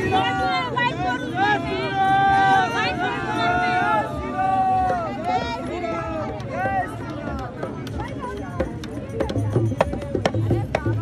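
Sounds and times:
crowd voices: 0.0s - 11.0s
low steady drum tone: 7.3s - 11.0s
percussion sharp strikes: 7.3s - 11.0s.

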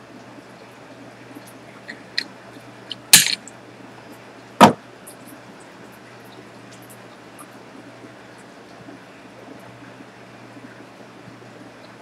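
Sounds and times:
side cutters clipping wire: 2.9s - 3.5s.

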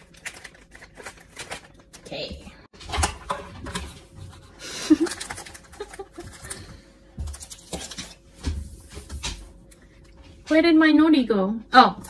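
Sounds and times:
plastic packets crinkling: 0.0s - 2.1s.

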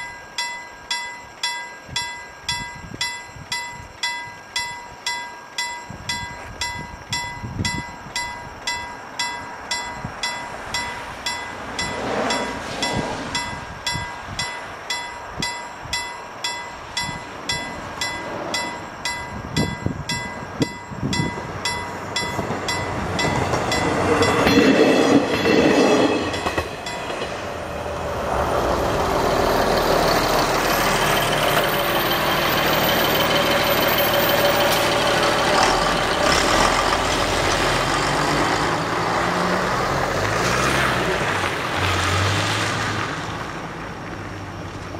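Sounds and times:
level crossing warning bell ringing: 0.0s - 39.2s
rushing noise: 6.3s - 44.0s
road vehicles driving: 8.0s - 44.9s
engine rising in pitch: 26.1s - 43.3s.

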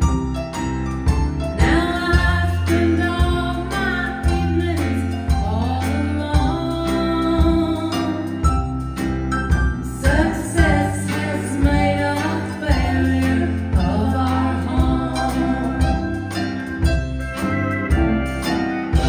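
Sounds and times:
country band playing: 0.0s - 19.0s
woman singing: 1.6s - 8.5s, 10.0s - 16.6s.

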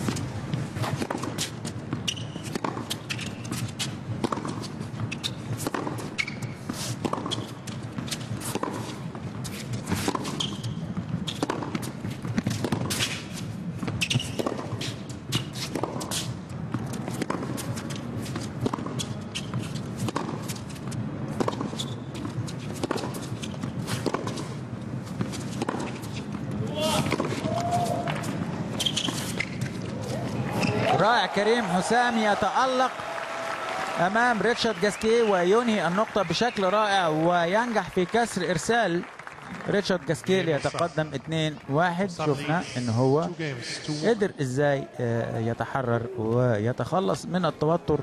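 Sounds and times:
tennis ball struck by racquets: 0.0s - 33.1s
low arena background: 0.0s - 48.0s.

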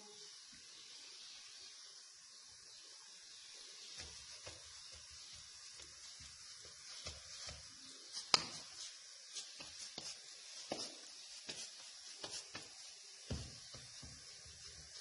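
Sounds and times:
faint steady hiss: 0.0s - 15.0s
hands patting dough: 3.5s - 15.0s.

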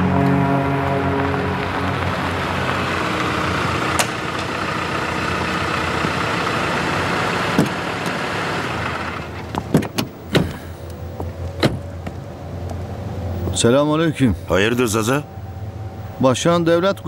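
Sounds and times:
car engine running: 0.0s - 16.2s
car door shutting: 3.8s - 4.5s, 7.4s - 8.2s, 9.4s - 11.9s.

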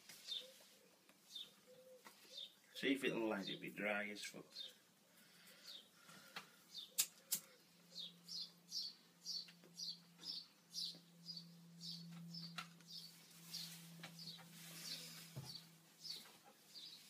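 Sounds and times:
low steady hum: 4.7s - 16.0s
high bird chirps: 7.9s - 17.0s.

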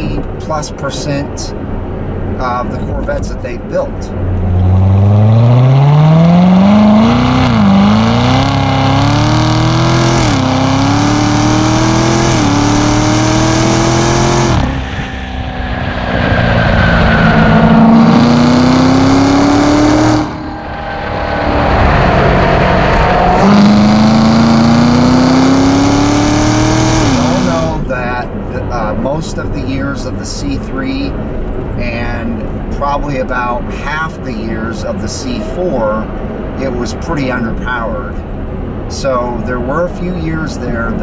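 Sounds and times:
car exhaust accelerating hard: 3.8s - 30.3s.

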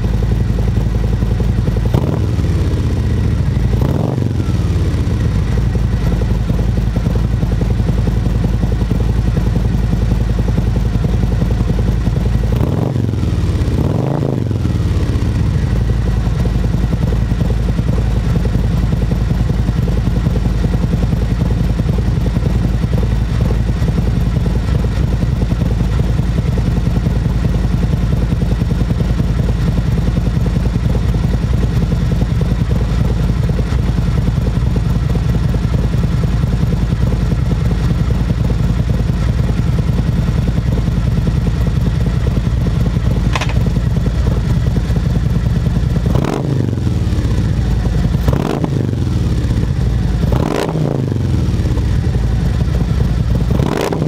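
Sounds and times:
motorcycle engine idling: 0.0s - 54.0s
motorcycle throttle blips: 41.4s - 54.0s.

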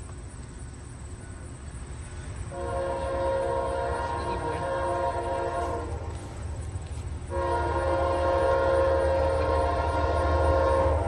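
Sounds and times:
locomotive air horn chord: 2.5s - 6.4s, 7.3s - 11.0s.

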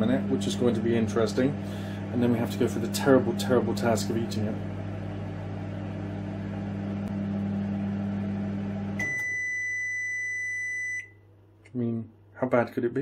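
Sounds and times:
microwave oven humming: 0.0s - 12.0s
long high beep: 9.0s - 11.2s.

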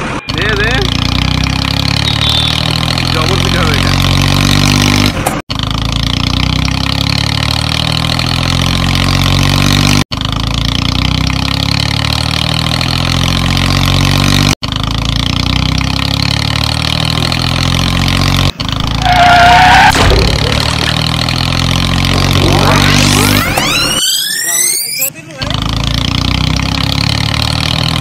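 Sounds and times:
motor vehicle engine running: 0.0s - 28.0s
loud high-pitched tone: 22.4s - 25.1s.

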